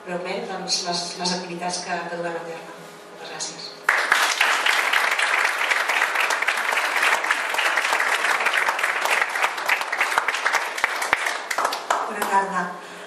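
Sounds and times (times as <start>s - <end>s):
audience applauding: 3.9s - 12.3s.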